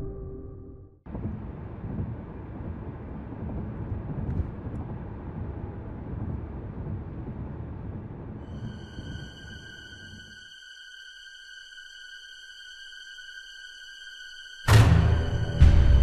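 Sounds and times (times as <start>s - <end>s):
music: 0.0s - 1.1s, 8.4s - 16.0s
steady low rumbling noise: 1.1s - 10.3s.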